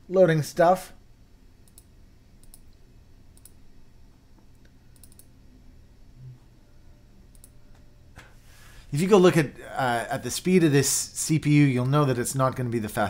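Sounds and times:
computer mouse buttons clicking: 1.6s - 3.6s, 4.6s - 5.3s, 7.3s - 7.6s.

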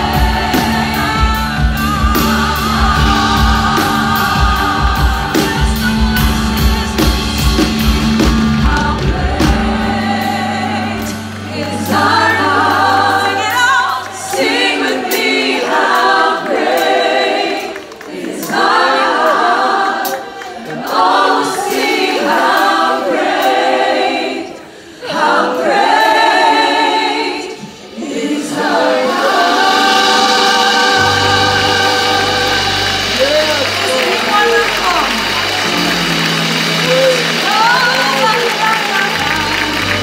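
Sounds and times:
group singing gospel song: 0.0s - 40.0s.

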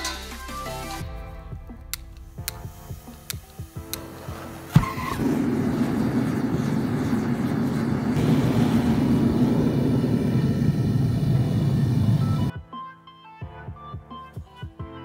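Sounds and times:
gas burner rushing: 1.9s - 12.5s.

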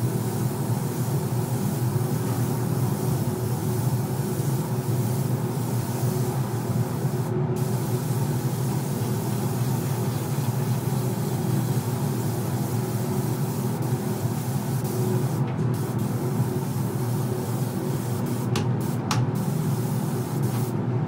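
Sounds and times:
spray gun hissing: 0.0s - 20.7s.

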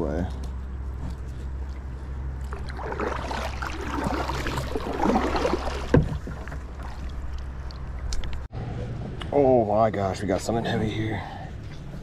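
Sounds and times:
water splashing around a kayak: 1.4s - 8.5s.

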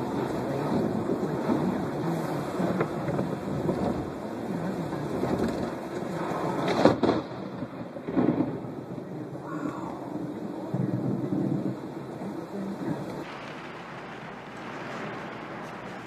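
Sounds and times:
steady rain: 0.0s - 16.0s
thunder burst: 5.0s - 16.0s
lightning strike crack: 5.1s - 12.2s, 12.8s - 16.0s.

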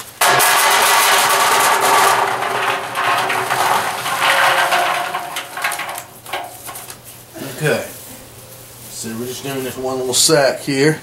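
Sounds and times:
peanut shells rattling on metal: 0.2s - 7.0s.

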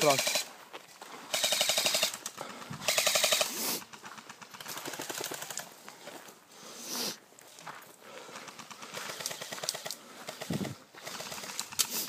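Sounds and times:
airsoft rifle full-auto burst: 0.0s - 0.5s, 1.3s - 5.6s, 8.5s - 12.0s
quieter uneven noises: 0.0s - 12.0s.

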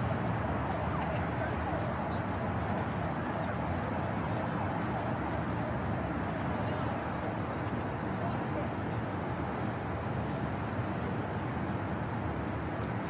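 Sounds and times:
city traffic hum: 0.0s - 13.0s
faint indistinct voices: 6.2s - 11.2s.

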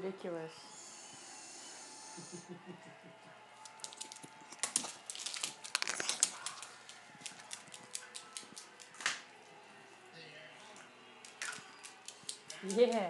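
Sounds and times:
dog claws clicking on wooden floor: 3.6s - 9.2s, 11.2s - 13.0s.

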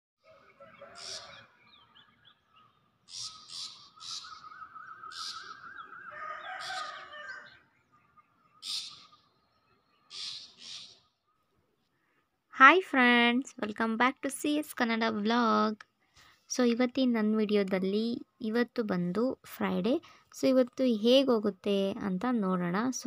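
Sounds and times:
short harsh bird calls: 0.2s - 11.4s
warbling bird song: 0.2s - 11.9s.

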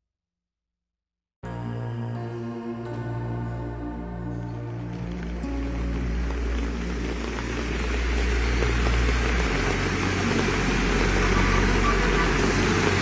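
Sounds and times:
car engine hum: 1.5s - 13.0s
water splashing: 4.5s - 13.0s.

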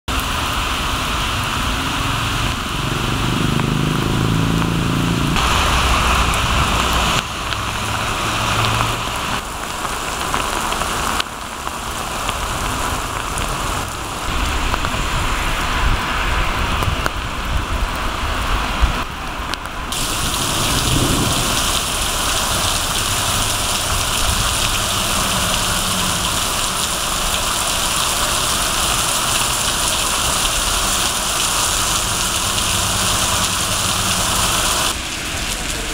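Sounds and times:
heavy rain on wet street: 0.1s - 35.9s
low rumbles: 0.2s - 18.9s, 19.8s - 28.1s.

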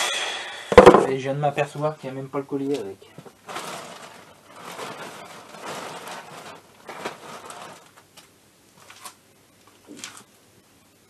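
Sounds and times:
rummaging through parts and bags: 3.2s - 9.2s.

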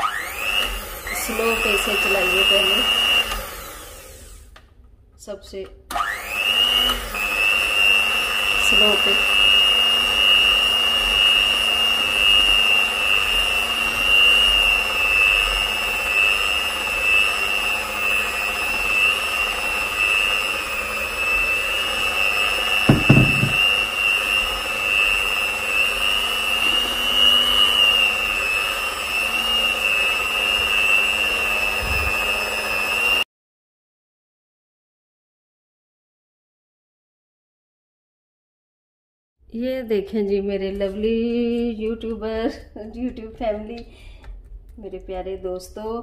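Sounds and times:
electric hand mixer whining: 0.0s - 4.5s, 5.9s - 33.2s
brief knock: 22.9s - 23.7s.

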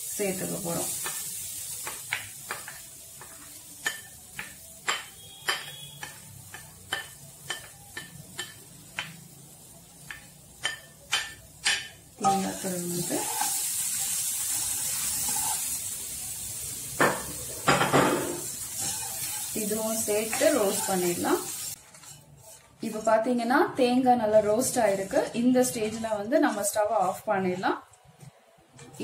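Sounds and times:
spatula clicking and tapping pan: 0.8s - 9.4s, 10.0s - 12.4s
spatula scraping in pan: 12.2s - 15.9s, 18.2s - 23.4s, 24.3s - 27.8s.

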